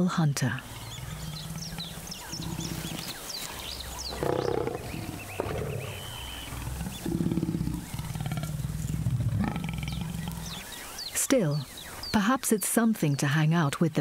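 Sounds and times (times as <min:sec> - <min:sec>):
lion growling: 0:00.5 - 0:10.9.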